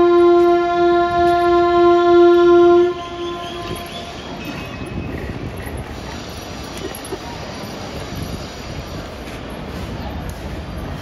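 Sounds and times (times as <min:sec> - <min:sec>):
locomotive air horn blast: 0:00.0 - 0:04.6
moving freight train: 0:00.0 - 0:11.0.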